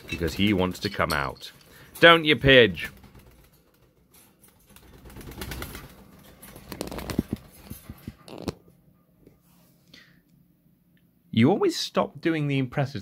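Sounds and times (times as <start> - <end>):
phone rustling and knocking: 6.7 - 7.4.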